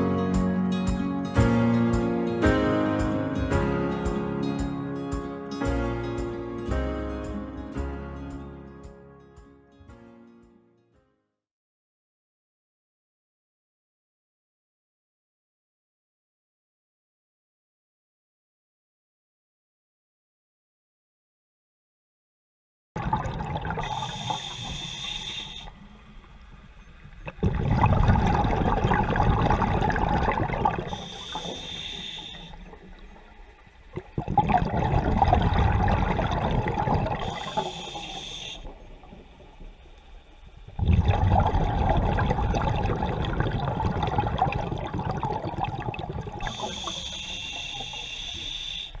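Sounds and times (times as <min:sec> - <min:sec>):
rush of exhaled bubbles: 0:23.0 - 0:25.7, 0:27.2 - 0:33.2, 0:33.9 - 0:39.7, 0:40.6 - 0:48.8
regulator inhale hiss: 0:23.8 - 0:26.0, 0:30.8 - 0:32.8, 0:37.1 - 0:39.0, 0:46.4 - 0:49.0.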